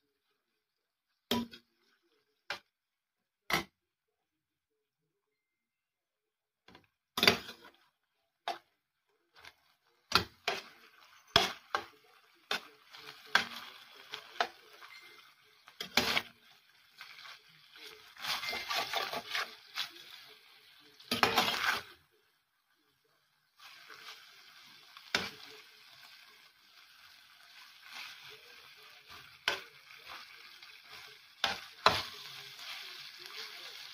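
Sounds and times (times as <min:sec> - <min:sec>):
meat frying: 0:07.2 - 0:33.9
metal spoon scraping a pan: 0:10.1 - 0:20.3, 0:21.0 - 0:22.0.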